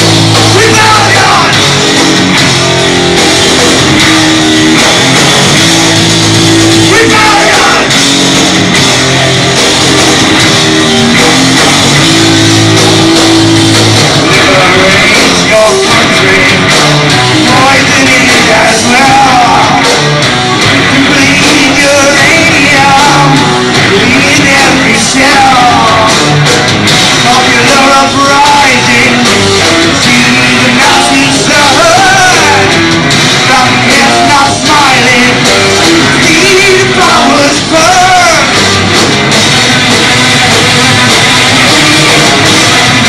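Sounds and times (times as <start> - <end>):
metal band playing: 0.0 - 43.0
man singing: 0.4 - 1.6, 6.8 - 8.0, 14.2 - 20.0, 20.8 - 26.4, 27.2 - 38.6.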